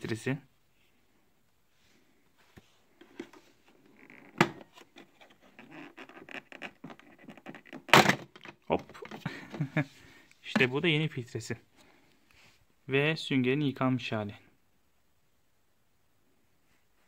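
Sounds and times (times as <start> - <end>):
plastic clicks and scrapes: 3.0 - 9.3.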